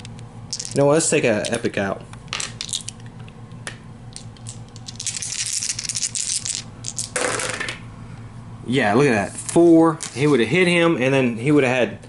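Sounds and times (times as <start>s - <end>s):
dice rattling and clattering: 0.5s - 0.8s, 2.4s - 3.0s, 4.2s - 7.8s.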